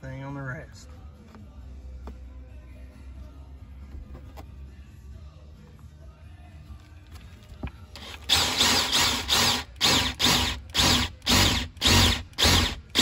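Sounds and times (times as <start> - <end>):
cordless drill boring: 8.0 - 13.0.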